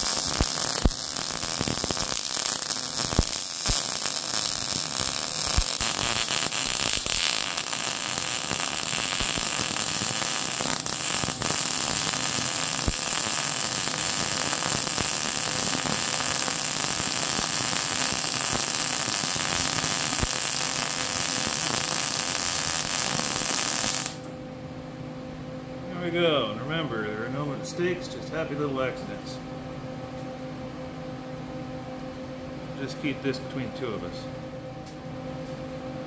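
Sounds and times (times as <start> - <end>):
welding arc crackling hiss: 0.0 - 24.3.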